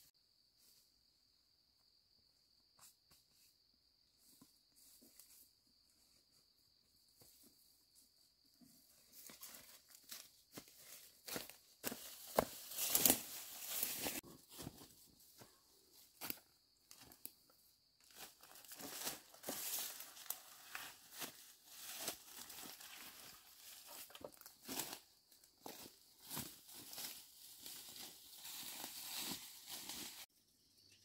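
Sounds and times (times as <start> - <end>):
footsteps crunching dry leaves: 9.1 - 15.2, 18.0 - 30.3
brushing past ferns: 12.1 - 14.3, 26.3 - 30.3.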